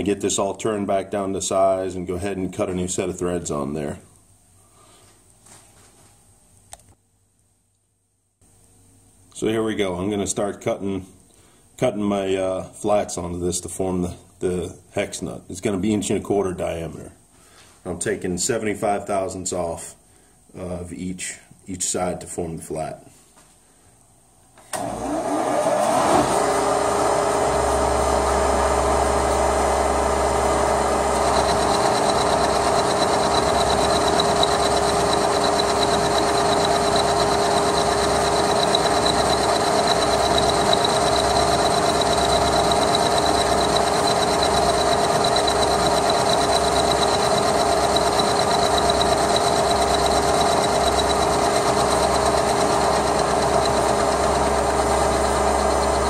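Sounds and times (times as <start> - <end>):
milling machine spindle running: 25.0 - 56.0
end mill cutting steel: 25.8 - 56.0
high whine: 27.5 - 56.0.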